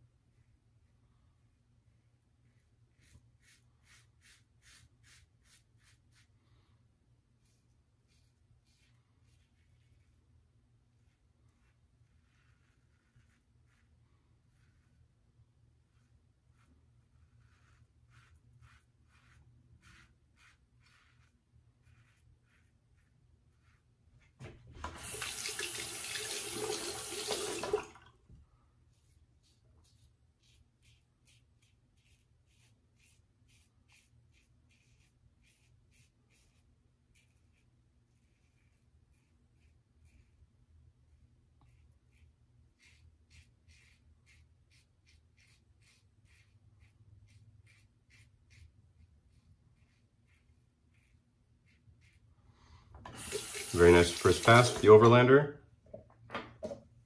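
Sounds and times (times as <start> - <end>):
tap running water: 24.4 - 28.1, 53.0 - 55.1.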